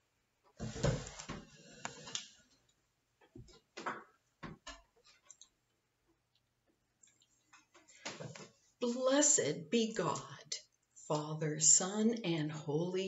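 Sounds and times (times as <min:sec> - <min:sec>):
microphone handling knocks and rustling: 0:00.6 - 0:01.5.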